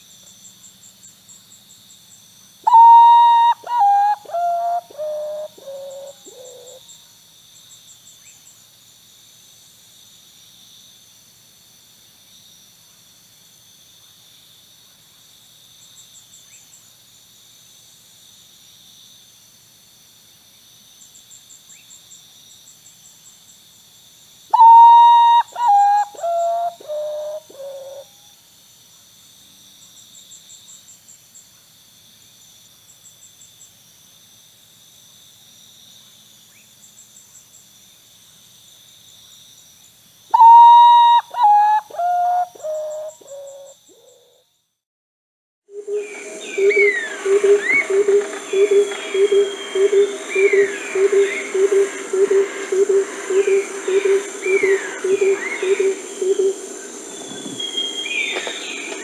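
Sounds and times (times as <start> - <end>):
insects buzzing with pulsing trill: 0.0 - 44.8, 45.7 - 59.0
bird whistling descending notes: 2.7 - 5.4, 24.6 - 27.4, 40.4 - 42.5, 45.8 - 56.6, 57.2 - 58.9.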